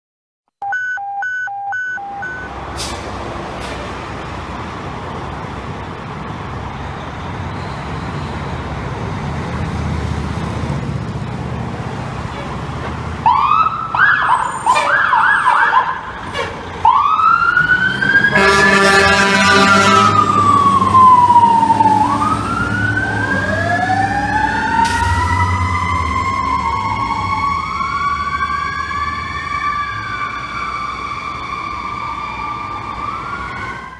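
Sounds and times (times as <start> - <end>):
electronic siren yelps: 0.6 - 2.6, 13.2 - 16.2, 16.8 - 33.9
fire engine rumbling: 2.2 - 33.9
mechanical siren wailing: 16.8 - 33.9
air horn blast: 18.3 - 20.3.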